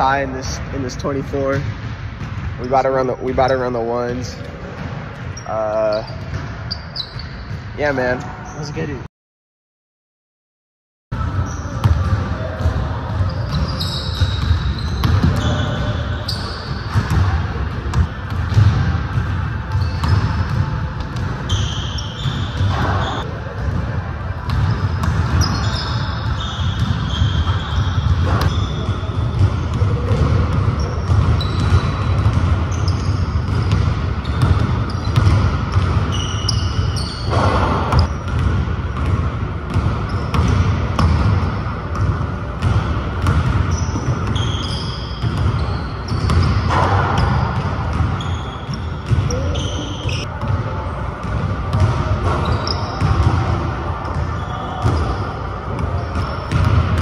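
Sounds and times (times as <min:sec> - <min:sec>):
sneakers squeaking on court: 0:00.0 - 0:09.0, 0:11.2 - 0:57.0
basketballs bouncing on hardwood: 0:11.8 - 0:50.5, 0:56.0 - 0:57.0.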